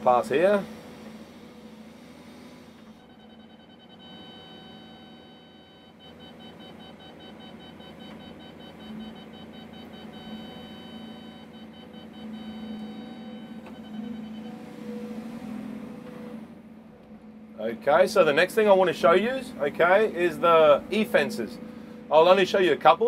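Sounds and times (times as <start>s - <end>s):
excavator engine hum: 0.0s - 23.0s
electronic warning tone: 2.9s - 15.3s
rapid beeps: 3.0s - 14.5s.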